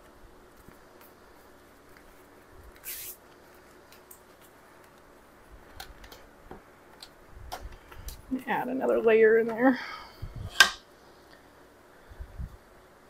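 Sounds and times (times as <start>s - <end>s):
hissing rustle: 0.5s - 5.0s.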